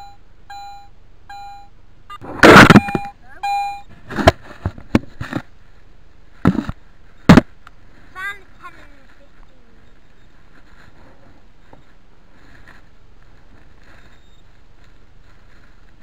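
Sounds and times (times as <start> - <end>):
metal detector beeps: 0.0 - 4.0, 13.8 - 14.6
thumps on microphone: 6.4 - 7.5.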